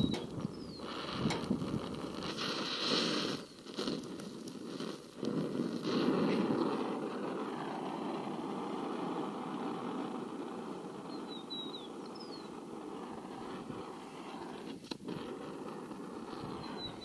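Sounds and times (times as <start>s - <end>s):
bird chirps: 0.0s - 0.9s, 11.1s - 12.5s, 16.6s - 17.0s
torch hissing: 0.0s - 17.0s.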